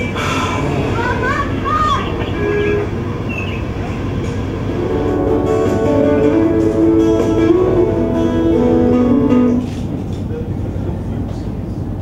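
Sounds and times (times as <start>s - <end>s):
steady low rumble: 0.0s - 12.0s
guitar-like melody over loudspeakers: 4.7s - 9.9s.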